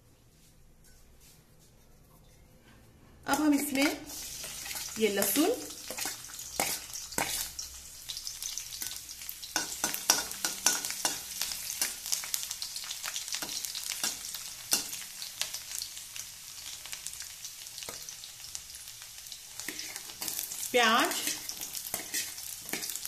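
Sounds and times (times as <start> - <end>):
metal spatula scraping a pan: 0.8 - 7.7, 8.8 - 12.2, 19.6 - 23.0
garlic sizzling in hot oil: 3.3 - 23.0.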